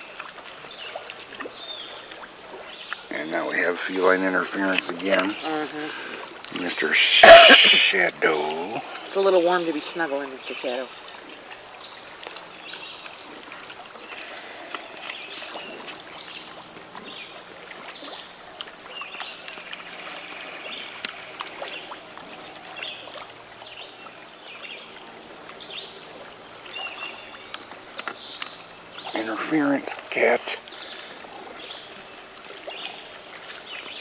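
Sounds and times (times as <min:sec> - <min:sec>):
small clicks and splashes: 0:00.0 - 0:03.1, 0:06.1 - 0:06.8, 0:09.4 - 0:34.0
running water: 0:00.0 - 0:34.0
birds chirping and trilling: 0:25.6 - 0:34.0.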